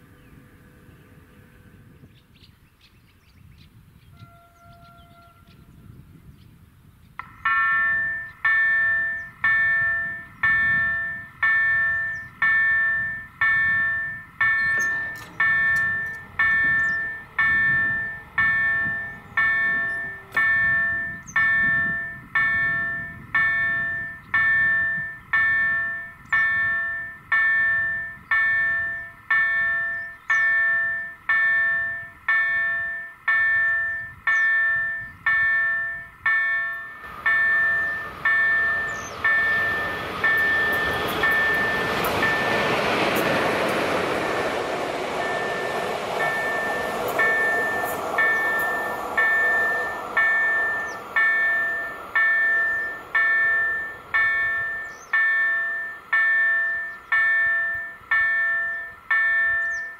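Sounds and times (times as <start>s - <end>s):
level crossing bell chiming: 45.2s - 59.9s.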